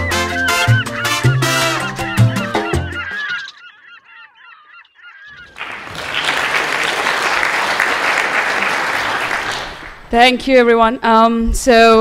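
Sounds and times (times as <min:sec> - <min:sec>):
lively latin-style music: 0:00.0 - 0:03.5
audience applauding: 0:05.3 - 0:10.1.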